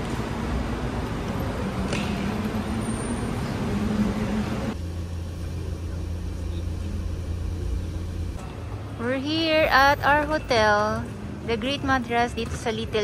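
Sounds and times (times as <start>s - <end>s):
van engine droning inside cabin: 0.0s - 9.2s
outdoor traffic noise: 0.0s - 13.0s
steady hum: 0.0s - 13.0s.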